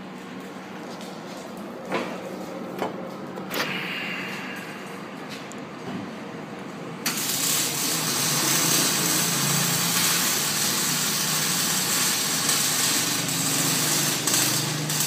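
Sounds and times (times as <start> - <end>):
welding arc hissing: 7.0 - 15.0.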